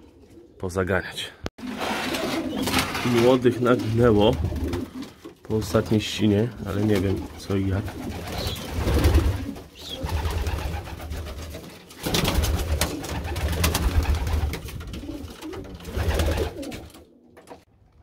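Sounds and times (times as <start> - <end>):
pigeons cooing: 1.8 - 2.9, 3.7 - 5.3, 7.8 - 11.6, 14.9 - 17.4.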